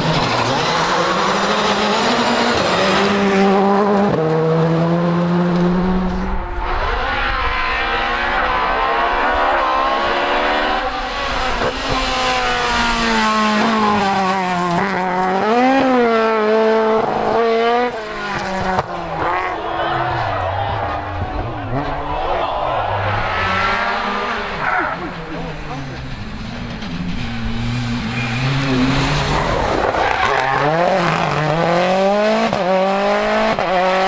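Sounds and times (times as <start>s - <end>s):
rally car engine revving: 0.0s - 34.0s
rally car passing: 0.0s - 34.0s.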